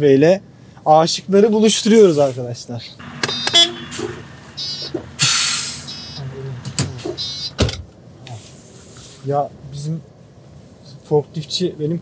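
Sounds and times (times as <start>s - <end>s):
loud hiss: 3.0s - 6.5s
car rolling past: 3.0s - 7.8s.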